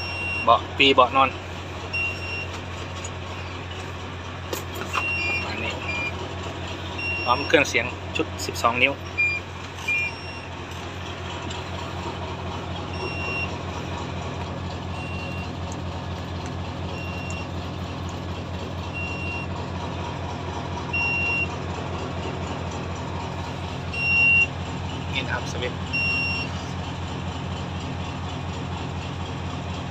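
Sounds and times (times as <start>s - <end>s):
diesel engine idling: 0.0s - 29.9s
warning buzzer beeps: 2.0s - 2.5s, 5.0s - 6.1s, 9.1s - 10.5s.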